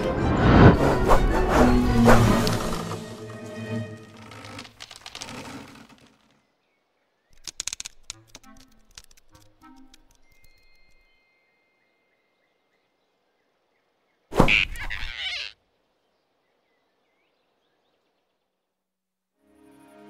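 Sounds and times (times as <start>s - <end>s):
cartoon grab sound effect: 14.3s - 15.5s.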